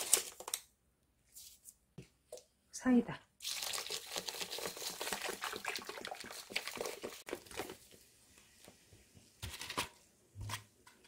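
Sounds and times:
soda pouring into metal bowl: 3.4s - 7.2s
fizzing crackle: 3.4s - 8.5s.

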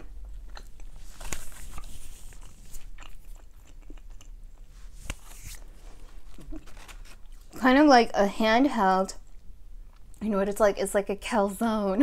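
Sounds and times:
person chewing food: 0.0s - 7.6s.

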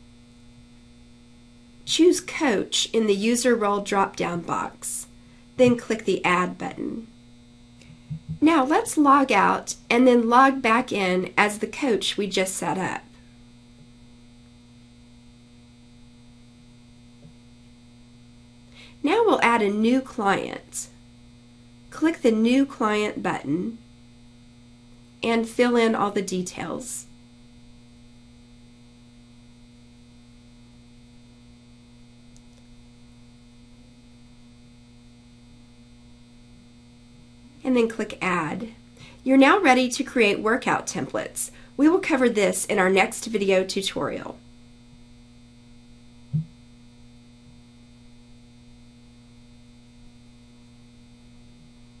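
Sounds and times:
low electrical hum: 0.0s - 52.0s
short low thump: 8.0s - 8.4s, 46.3s - 46.6s.

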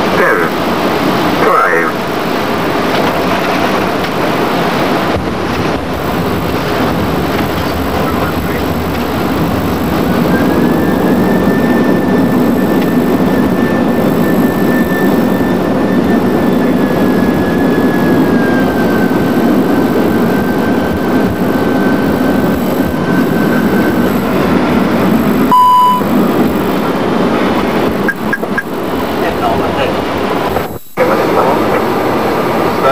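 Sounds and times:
high whine dropping in pitch: 0.0s - 32.9s
jet engines roaring: 0.0s - 32.9s
short beep: 25.5s - 26.1s.

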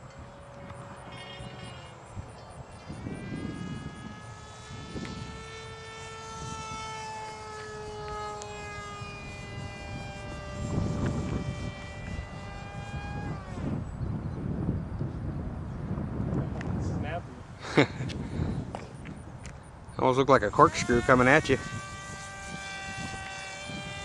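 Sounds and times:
model plane motor whining: 0.0s - 14.6s, 20.1s - 24.0s
wind buffeting microphone: 0.0s - 24.0s.

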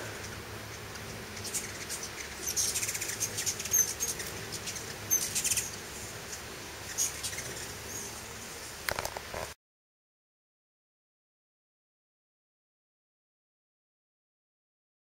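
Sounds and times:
hummingbirds chipping and twittering: 0.0s - 8.9s.

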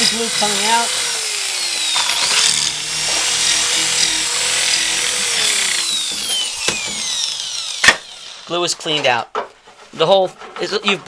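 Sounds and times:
electric drill whining: 0.0s - 8.8s
drill bit scraping in wood: 0.0s - 9.2s.

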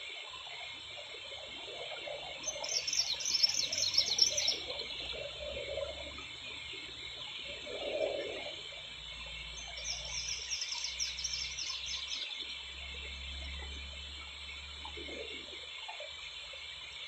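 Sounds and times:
songbird trilling: 2.4s - 5.4s, 9.6s - 12.5s
steady high chirring: 2.4s - 17.0s.

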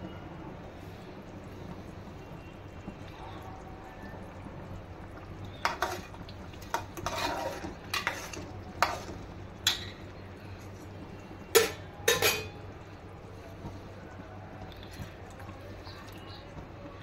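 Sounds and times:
spoon scraping metal pot: 5.6s - 10.0s, 11.6s - 12.6s.

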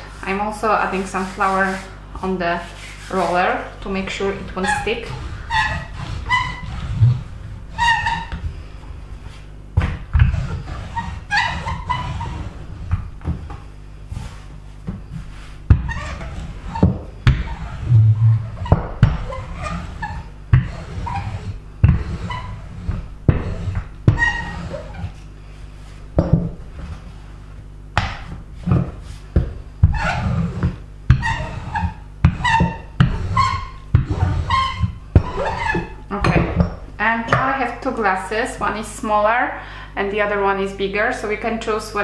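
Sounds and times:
rolling pin rumbling on dough: 0.0s - 37.7s
rolling pin knocking on board: 28.0s - 30.0s.

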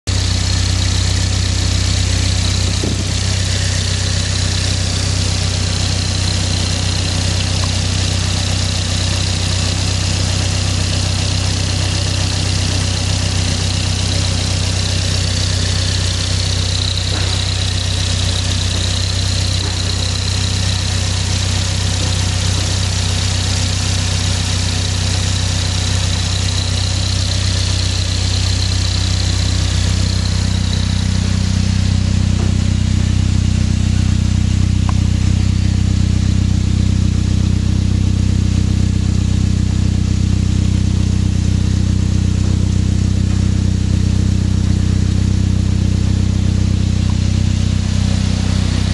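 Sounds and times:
car engine idling: 0.0s - 48.9s
high whine: 0.2s - 8.4s, 25.6s - 48.9s.

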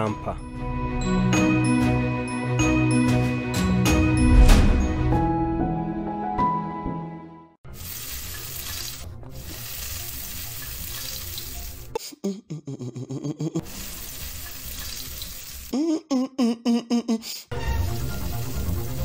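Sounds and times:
background music: 0.0s - 12.1s, 17.5s - 19.0s.

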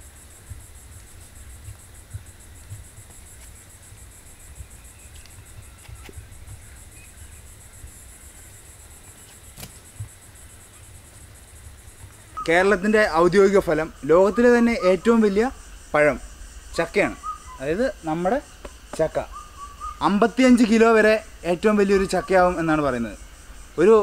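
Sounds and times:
cicadas chirring: 0.0s - 24.0s
soft thumps: 0.4s - 3.6s
faint clicks: 5.1s - 6.7s.

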